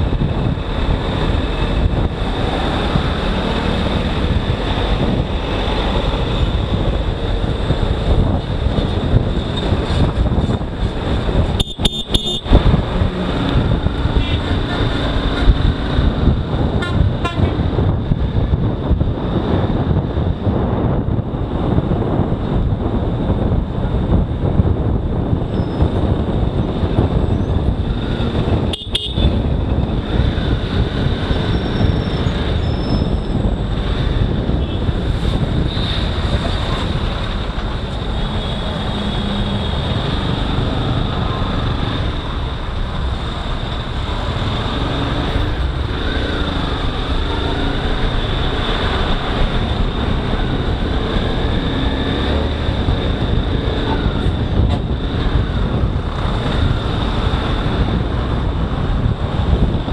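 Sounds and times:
wind and road noise: 0:00.0 - 0:59.9
vehicle horns: 0:11.6 - 0:12.6, 0:14.2 - 0:14.6, 0:16.8 - 0:17.6, 0:28.6 - 0:29.5.

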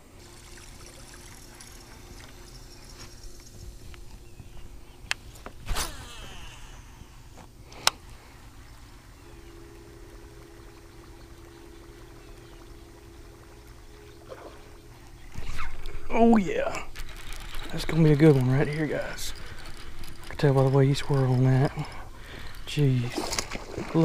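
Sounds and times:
faint steady hum: 0:00.0 - 0:24.0
fishing reel click: 0:16.9 - 0:23.6.

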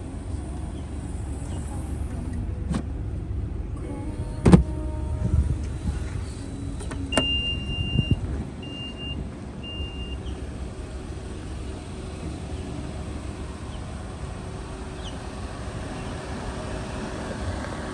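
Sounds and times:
outdoor background noise: 0:00.0 - 0:17.9
short warning beeps: 0:07.1 - 0:10.2.

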